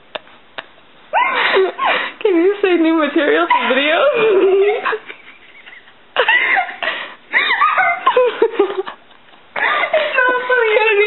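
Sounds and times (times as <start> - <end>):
woman squealing with laughter: 1.1 - 2.0, 3.5 - 9.0.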